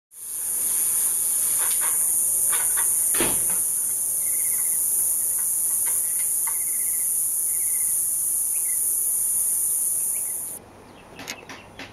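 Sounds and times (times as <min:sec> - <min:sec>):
high-pitched insect drone: 0:00.2 - 0:10.6
brief thump: 0:03.1 - 0:03.7.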